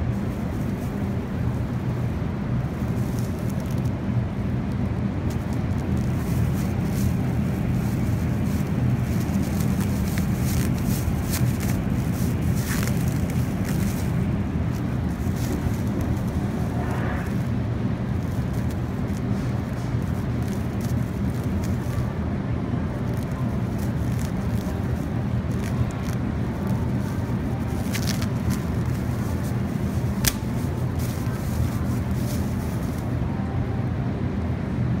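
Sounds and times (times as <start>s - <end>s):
ventilation and refrigerator hum: 0.0s - 35.0s
plastic bag crinkling: 0.2s - 22.2s, 22.8s - 33.2s.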